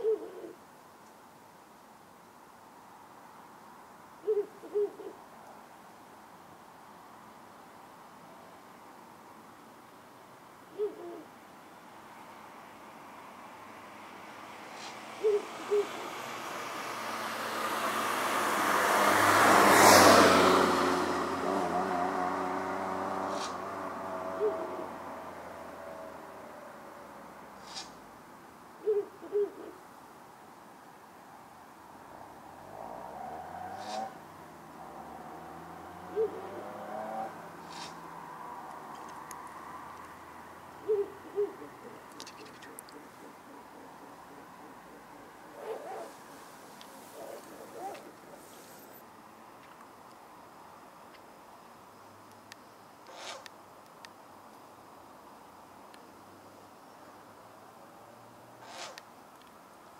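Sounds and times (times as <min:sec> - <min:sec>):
owl hoots: 0:00.0 - 0:00.6, 0:04.2 - 0:05.2, 0:10.7 - 0:11.3, 0:14.8 - 0:16.3, 0:23.3 - 0:23.7, 0:24.3 - 0:25.2, 0:27.6 - 0:28.0, 0:28.8 - 0:29.8, 0:33.7 - 0:34.2, 0:36.1 - 0:38.0, 0:40.8 - 0:49.0, 0:53.1 - 0:53.5, 0:58.6 - 0:59.0
passing car road noise: 0:12.0 - 0:28.7, 0:30.0 - 0:52.2.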